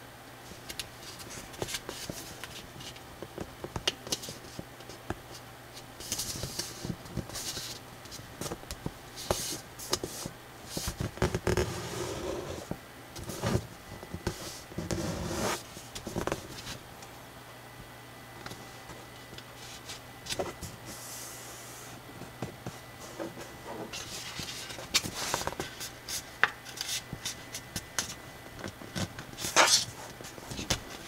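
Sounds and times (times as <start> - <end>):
paper rustling and scraping: 1.0 - 3.0, 6.0 - 8.6, 9.2 - 16.8, 22.6 - 31.0.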